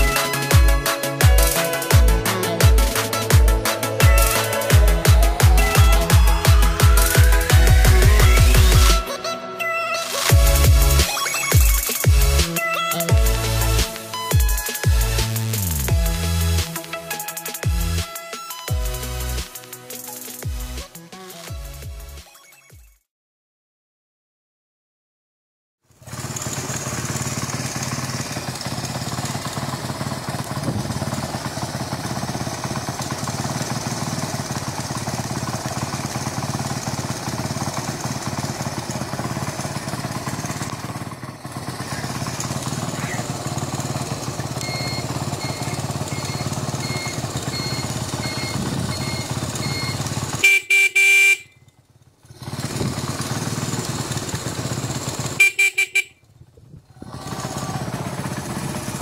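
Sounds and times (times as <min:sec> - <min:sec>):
motorcycle engine idling: 0:00.0 - 0:09.1, 0:10.2 - 0:22.2, 0:25.9 - 0:59.0
motorcycle horn honking: 0:37.5 - 0:51.7, 0:55.2 - 0:56.3
high beep pulsing: 0:44.6 - 0:51.5.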